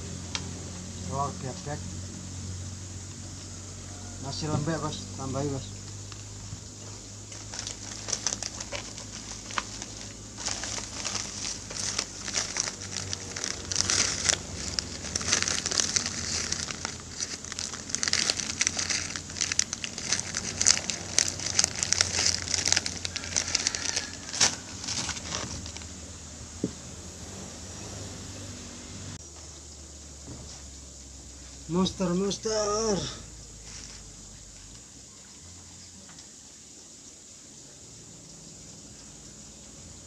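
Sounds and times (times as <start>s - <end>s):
hands kneading soft dough: 5.6s - 25.9s
crinkling and sharp clicks: 7.2s - 26.0s.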